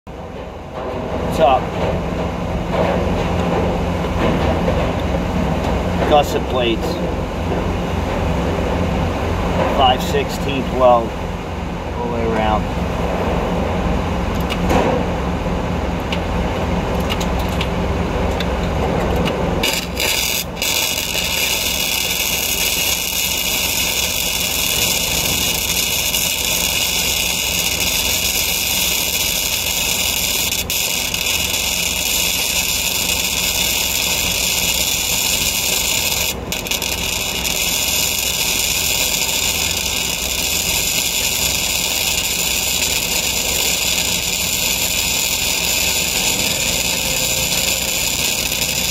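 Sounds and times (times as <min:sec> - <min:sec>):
welding arc hissing and crackling: 0:19.5 - 0:48.9.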